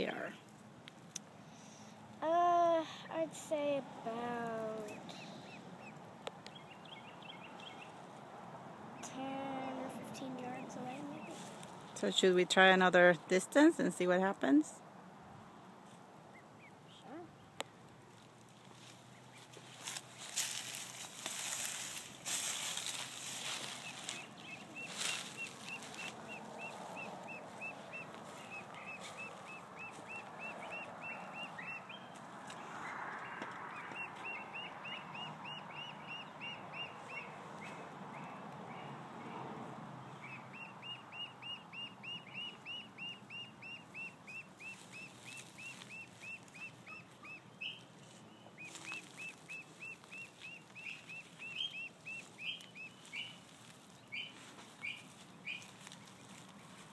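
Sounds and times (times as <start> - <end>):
duckling peeping: 3.6 - 8.0, 9.0 - 11.5, 19.0 - 39.3, 40.1 - 56.9
footsteps crunching on dry leaves: 11.1 - 11.9, 18.2 - 34.3, 44.6 - 46.9, 48.0 - 56.9.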